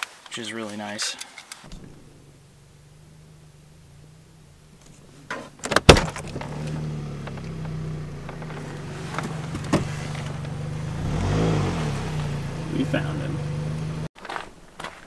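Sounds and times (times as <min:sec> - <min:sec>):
sharp clunks: 0:01.6 - 0:02.1, 0:04.8 - 0:10.7
vehicle engine idling: 0:01.7 - 0:14.1.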